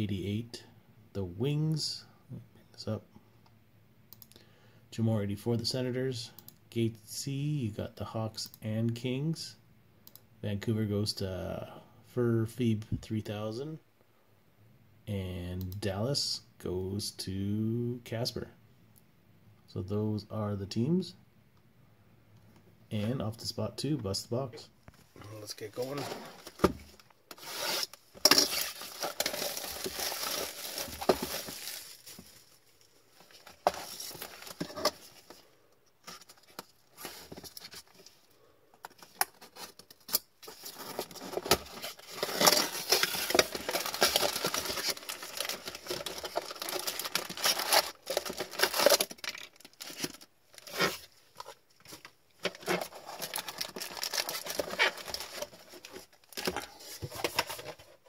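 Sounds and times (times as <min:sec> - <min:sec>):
foil packs rustling: 0:25.8 - 0:35.4, 0:40.4 - 0:57.8
plastic wrap crinkling: 0:25.8 - 0:35.4, 0:40.5 - 0:57.0
box cutter slitting plastic wrap: 0:27.4 - 0:31.5.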